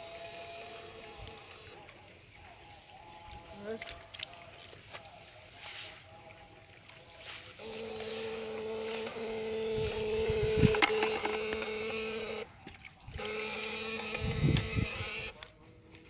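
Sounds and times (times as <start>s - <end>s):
electric device humming: 0.0s - 1.8s, 7.6s - 15.5s.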